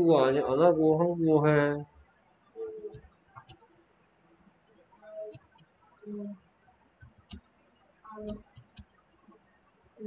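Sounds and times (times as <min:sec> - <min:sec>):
keyboard typing: 0:02.8 - 0:03.8, 0:05.2 - 0:05.8, 0:06.5 - 0:07.5, 0:08.1 - 0:08.9.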